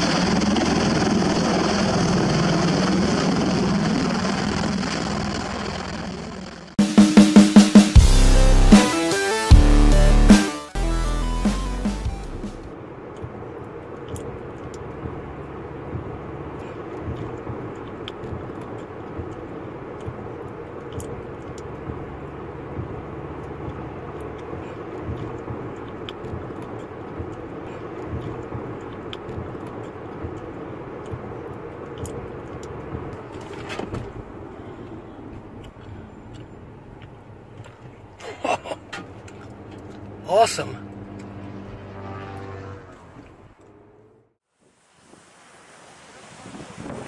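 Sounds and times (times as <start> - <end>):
car road and engine noise: 0.0 - 6.8, 7.8 - 44.6
person speaking: 40.2 - 40.9.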